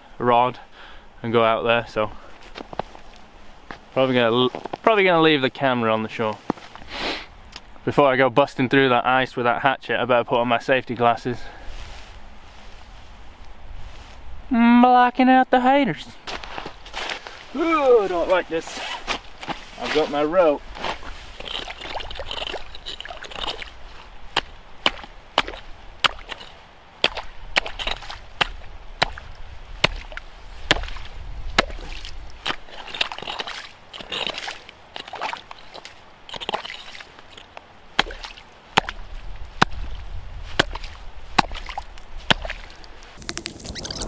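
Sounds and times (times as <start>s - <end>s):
hatchet chopping ice: 24.4s - 29.2s, 29.8s - 30.1s, 30.7s - 30.9s, 38.0s - 39.0s, 41.4s - 41.7s, 42.3s - 42.6s.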